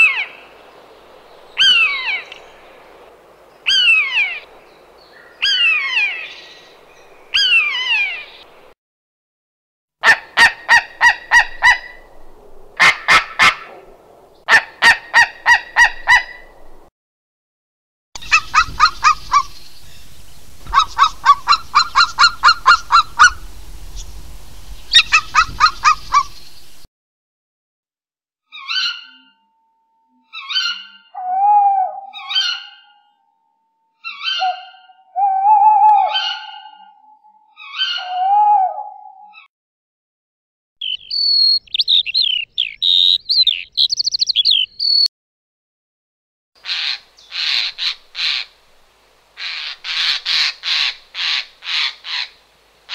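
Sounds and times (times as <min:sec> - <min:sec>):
owl calling: 0:01.6 - 0:02.6, 0:03.6 - 0:04.5, 0:05.1 - 0:06.7, 0:07.3 - 0:08.5, 0:10.0 - 0:12.1, 0:14.5 - 0:16.6, 0:18.2 - 0:26.9, 0:28.5 - 0:29.4, 0:30.3 - 0:33.2, 0:34.0 - 0:39.5, 0:40.8 - 0:45.1, 0:46.6 - 0:48.6, 0:49.4 - 0:52.9
eagle calling: 0:18.2 - 0:26.8, 0:40.8 - 0:45.1.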